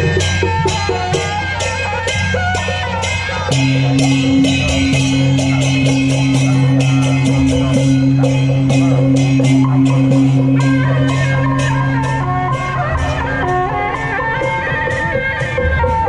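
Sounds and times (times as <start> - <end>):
drum: 0.0 - 16.0
hand cymbals clashing: 0.0 - 16.0.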